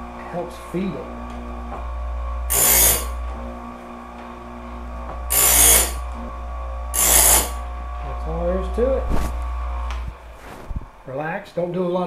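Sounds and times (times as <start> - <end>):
electric sharpener running: 0.0 - 10.3
grinding wheel on blade teeth: 2.4 - 3.8, 5.0 - 6.3, 6.9 - 8.8.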